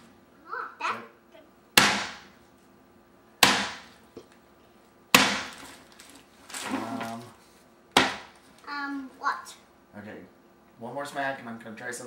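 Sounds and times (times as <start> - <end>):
hammer striking coconut: 1.8 - 2.3, 3.4 - 3.9, 5.1 - 5.5, 8.0 - 8.3.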